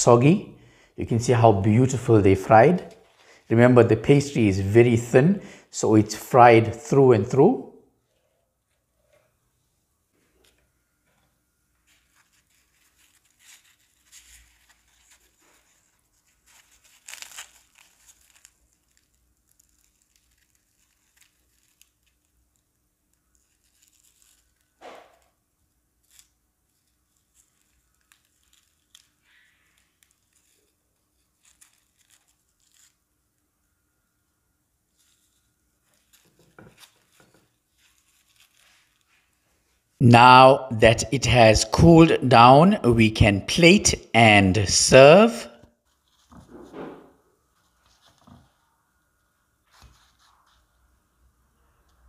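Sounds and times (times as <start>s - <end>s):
fried pastry crackling and tearing: 12.1s - 24.8s, 25.9s - 33.0s, 34.9s - 39.2s.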